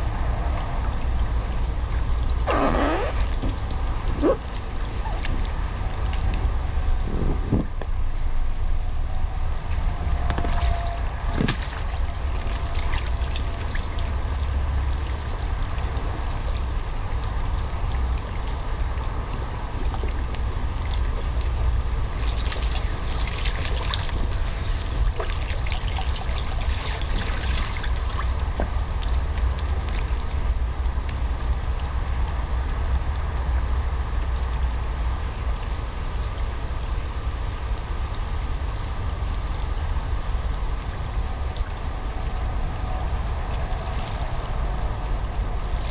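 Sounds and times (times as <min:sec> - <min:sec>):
water sloshing and splashing: 0:00.0 - 0:45.9
wind rumble on microphone: 0:00.0 - 0:45.9.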